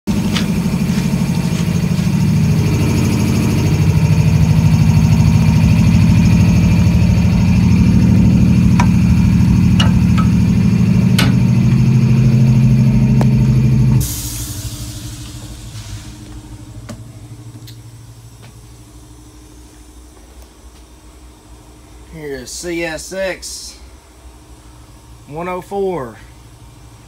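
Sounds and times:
locomotive diesel engine droning: 0.1s - 20.0s
knocks on steel steps: 8.7s - 11.9s.

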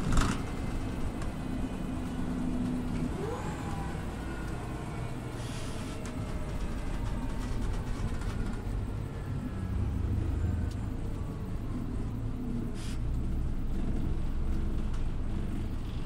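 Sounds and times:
bus engine rumble: 0.0s - 16.0s
falling whine: 0.0s - 16.0s
short hiss: 12.8s - 13.1s.

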